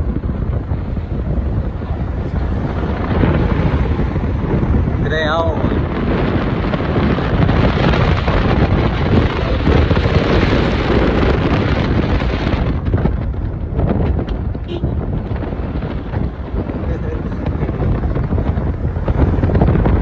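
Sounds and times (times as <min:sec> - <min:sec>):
car road noise: 0:00.0 - 0:20.0
wind rushing over microphone: 0:00.0 - 0:20.0.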